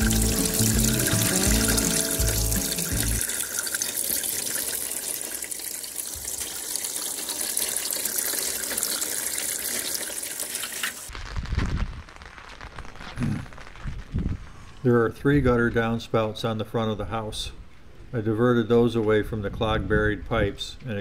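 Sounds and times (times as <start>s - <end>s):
background music: 0.0s - 3.2s
water running: 0.0s - 11.1s.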